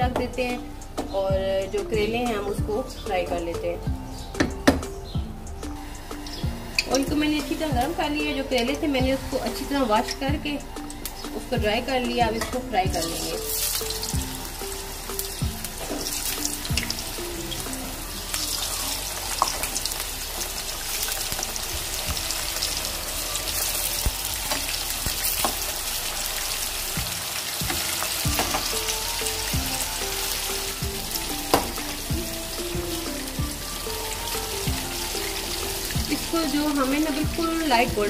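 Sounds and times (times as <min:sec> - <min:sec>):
food deep-frying in oil: 0:05.5 - 0:38.0.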